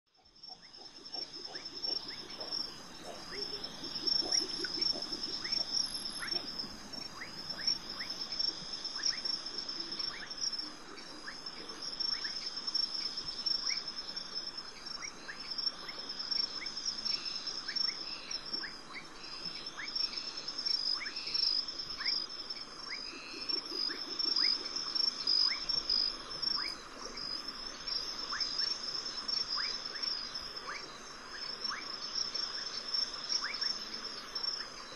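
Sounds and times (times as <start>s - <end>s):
insect chirps: 0.1s - 34.9s
high-pitched insect trill: 0.2s - 34.9s.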